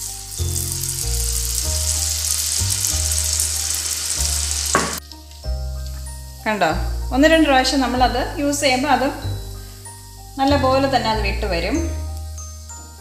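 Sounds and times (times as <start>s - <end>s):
batter frying in hot oil: 0.0s - 13.0s.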